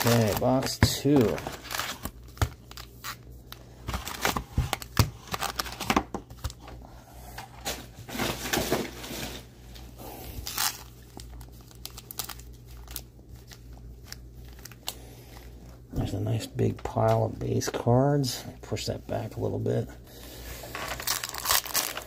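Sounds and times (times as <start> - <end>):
foil packs crinkling: 0.0 - 6.6, 10.1 - 15.6, 20.7 - 22.0.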